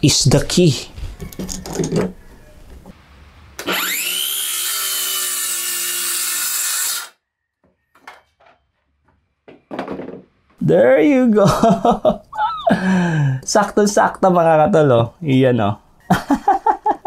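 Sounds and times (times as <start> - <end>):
circular saw cutting wood: 3.6 - 7.2.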